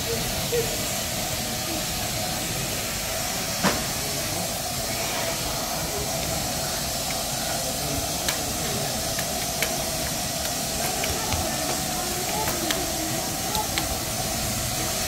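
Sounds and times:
steam hissing from locomotive: 0.0 - 15.0.

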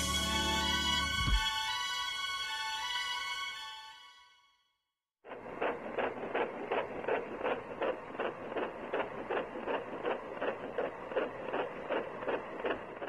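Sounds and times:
rhythmic mechanical clatter: 5.3 - 13.0.

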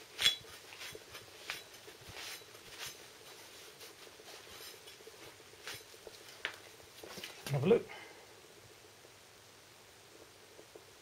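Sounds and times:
jacket sleeve rustling: 0.0 - 7.8.

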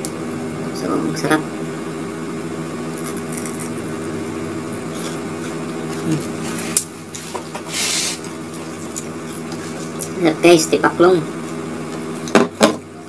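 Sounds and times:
buzzing hum: 0.0 - 13.0
crunchy chewing: 2.9 - 3.8, 4.7 - 7.3, 8.2 - 10.2.

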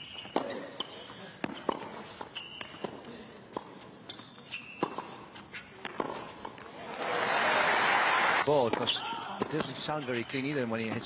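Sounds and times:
shoe squeaks on court: 0.0 - 3.0, 4.0 - 5.8
racquets striking tennis ball: 0.1 - 6.7
crowd applause and cheering: 6.9 - 8.4.

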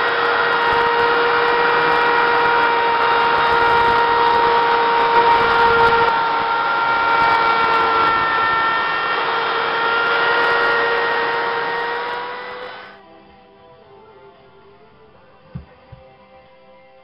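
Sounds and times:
router bit cutting wood: 0.0 - 13.0
router whining: 0.0 - 16.2.

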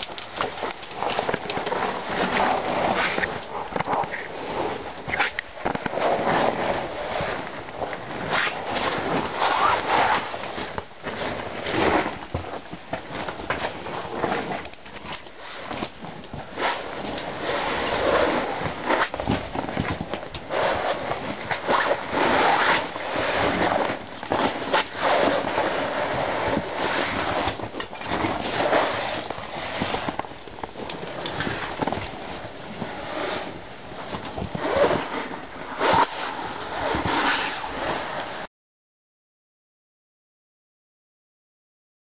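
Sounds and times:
clothing brushing against rock: 31.1 - 38.5.

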